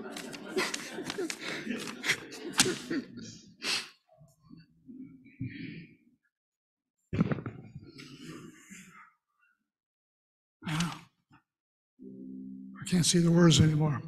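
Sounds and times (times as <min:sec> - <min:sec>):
paper rustling: 0:00.0 - 0:03.0.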